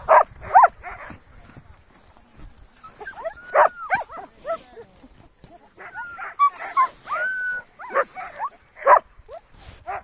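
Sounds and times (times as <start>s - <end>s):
dogs barking and yipping: 0.0s - 1.2s, 2.7s - 4.6s, 5.5s - 10.0s
dogs whining: 2.2s - 4.3s, 5.5s - 9.5s.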